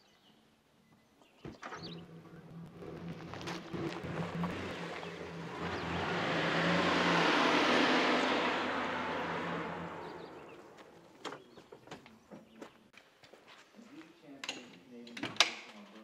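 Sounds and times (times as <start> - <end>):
pickup engine at low speed: 1.5 - 11.3
tyres crunching on gravel: 1.7 - 11.8.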